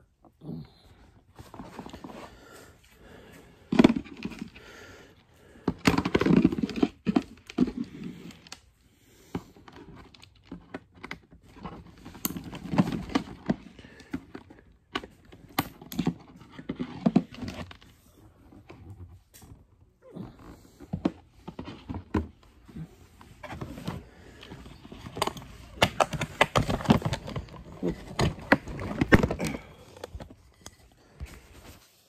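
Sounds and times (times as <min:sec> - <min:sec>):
plastic parts clicking and snapping: 0:24.4 - 0:30.8.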